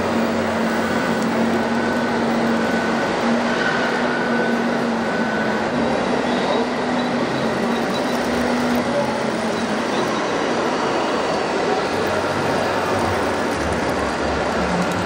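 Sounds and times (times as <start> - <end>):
model vehicles running: 0.0 - 15.0
faint whine: 0.1 - 10.4.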